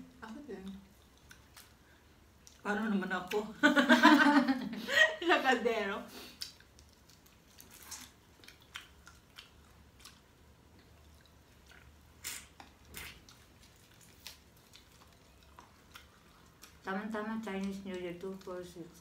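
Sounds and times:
low steady hum: 0.0s - 19.0s
chewing: 0.2s - 3.4s, 6.3s - 19.0s.

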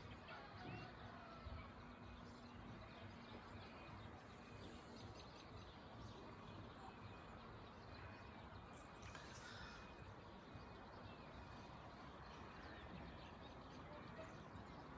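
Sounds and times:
faint bird chirps: 3.3s - 14.9s.

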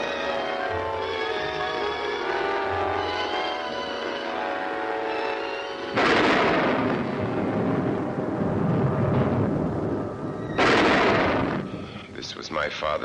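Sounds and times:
held orchestral chords: 0.0s - 10.3s
loud rolling thunderclap: 5.9s - 11.9s.

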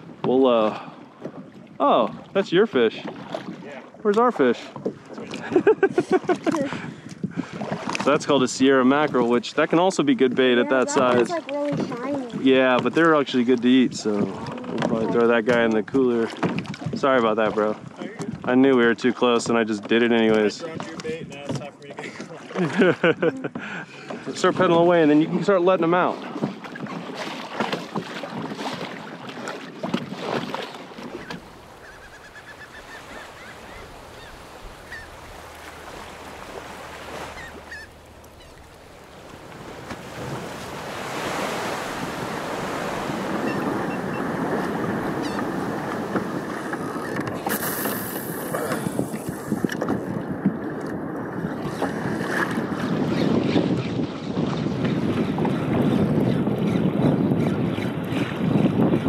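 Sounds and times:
sea water splashing against hull: 0.0s - 59.0s
wind buffeting microphone: 4.8s - 9.5s, 10.1s - 19.0s, 29.7s - 59.0s.

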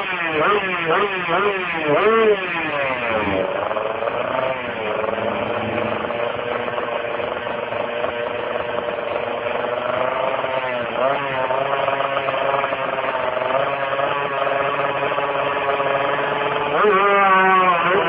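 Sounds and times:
motorcycle engine revving: 0.0s - 18.0s.

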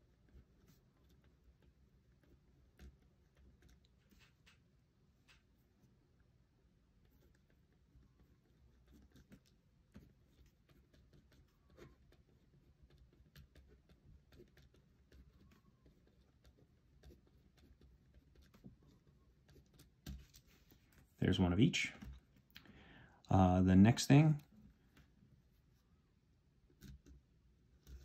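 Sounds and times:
pen scratching on paper: 7.0s - 20.6s.

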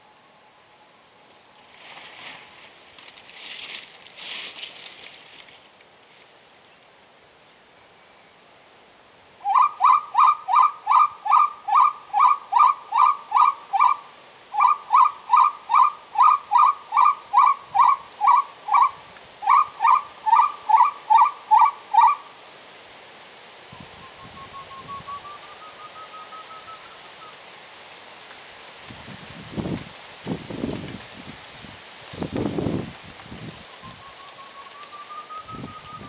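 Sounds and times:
rising whistled bird call: 9.4s - 14.0s, 23.7s - 27.4s, 33.7s - 36.0s
faint rising whistle: 23.7s - 27.4s, 33.8s - 36.0s.

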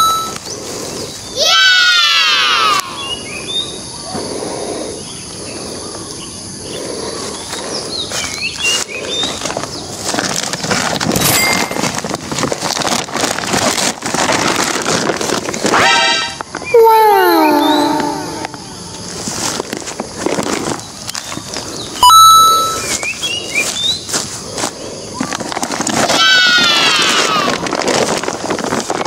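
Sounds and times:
dry leaves rustling: 8.1s - 16.7s, 18.6s - 22.0s, 22.8s - 29.0s
plastic sack crackling: 8.2s - 16.6s, 22.8s - 29.0s.

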